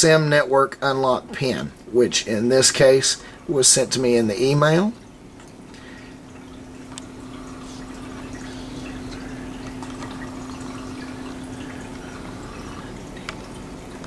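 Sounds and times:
low hum: 5.7 - 14.0
faint clicks: 6.9 - 7.1
background hiss: 6.9 - 14.0.

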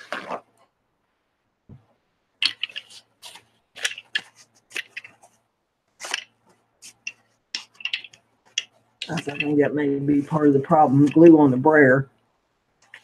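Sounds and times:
paper towel crinkling: 0.0 - 0.6, 2.4 - 11.4.

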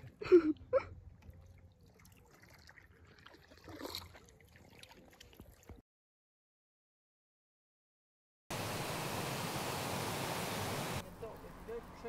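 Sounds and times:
water trickling and splashing: 1.1 - 5.8, 8.5 - 12.0.

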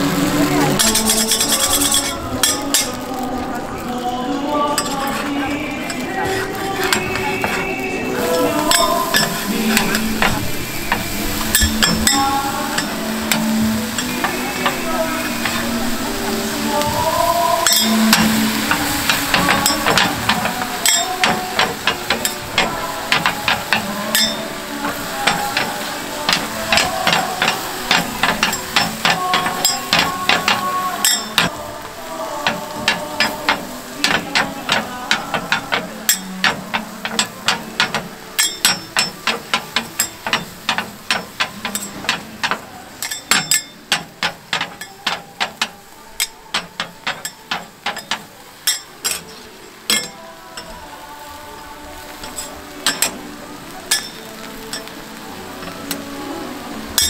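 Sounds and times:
metal spatulas clacking on griddle: 0.8 - 2.9, 4.8 - 12.2, 17.6 - 31.6, 32.4 - 50.8, 52.2 - 53.2, 53.9 - 54.9.

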